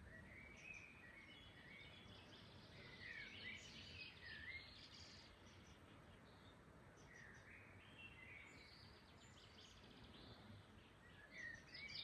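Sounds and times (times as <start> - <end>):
low background noise: 0.0 - 12.0
songbirds chirping: 0.0 - 12.0.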